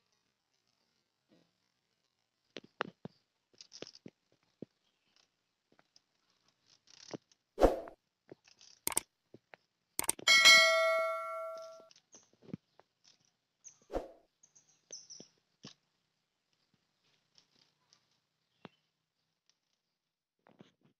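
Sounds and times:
sharp clicks: 10.0s - 10.3s
notification bell ding: 10.0s - 11.8s.

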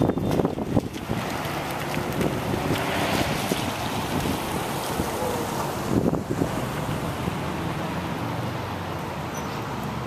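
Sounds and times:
wind buffeting microphone: 0.0s - 7.6s.

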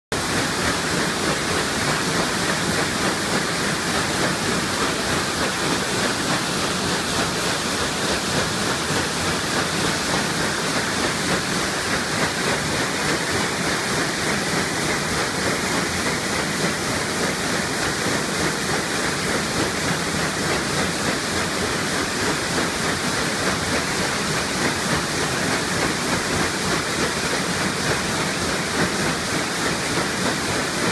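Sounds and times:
paddle wheel churning water: 0.1s - 30.9s.

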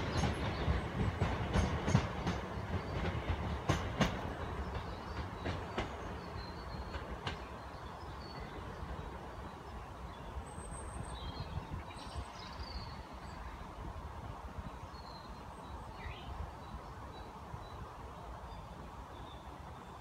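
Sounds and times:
electric train rumble: 0.0s - 17.6s.

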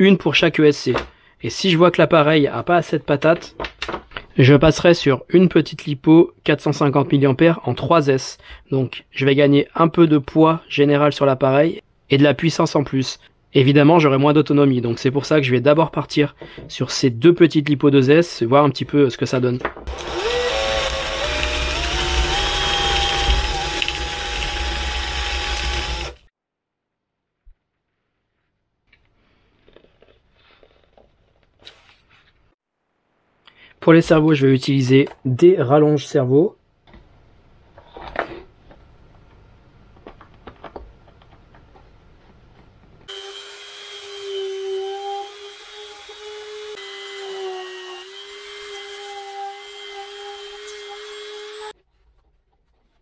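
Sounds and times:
cordless drill boring into foam: 19.9s - 26.3s, 43.1s - 51.8s
rotary tool whining: 19.9s - 26.3s.

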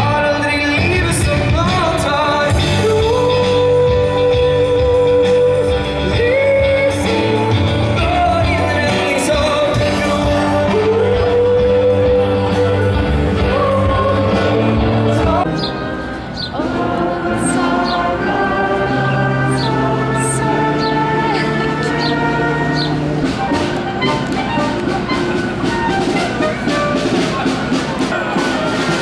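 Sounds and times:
man singing into microphone: 0.0s - 15.6s
live band keyboard and drums: 0.0s - 29.0s.

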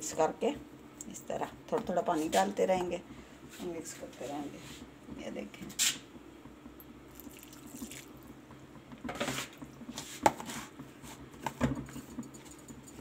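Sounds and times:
wet batter stirring: 7.1s - 8.3s.

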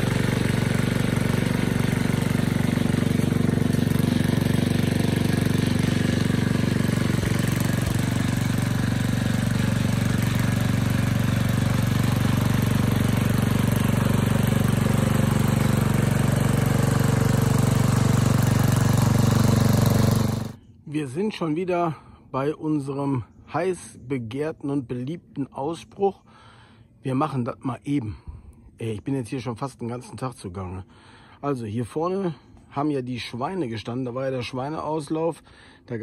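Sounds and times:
tiller engine running: 0.0s - 20.6s.

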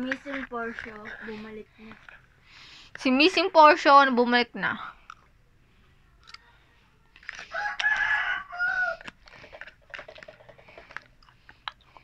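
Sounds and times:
rooster crowing: 7.4s - 9.1s.

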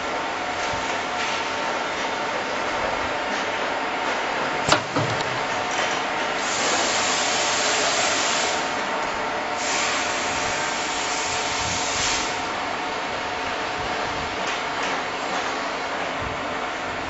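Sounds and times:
sealing bar metallic clack: 4.6s - 5.7s.

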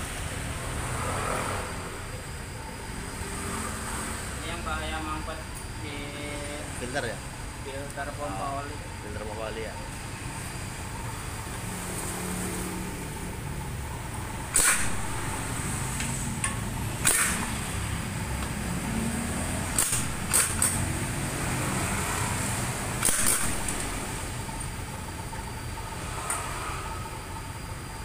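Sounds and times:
low workshop hum: 0.0s - 28.0s
power tool bursts on bolts: 14.5s - 15.3s, 17.0s - 17.9s, 19.7s - 20.9s, 22.9s - 24.1s.

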